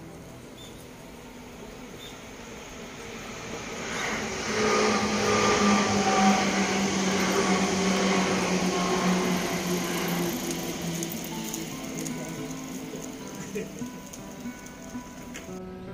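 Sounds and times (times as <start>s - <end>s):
train passing: 0.0s - 15.9s
steady tones: 1.0s - 15.6s.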